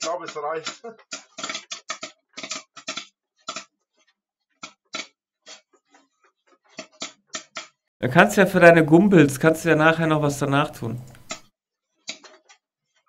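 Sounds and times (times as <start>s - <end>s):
popcorn popping: 0.0s - 3.7s, 4.6s - 5.7s, 6.7s - 7.8s, 10.9s - 12.6s.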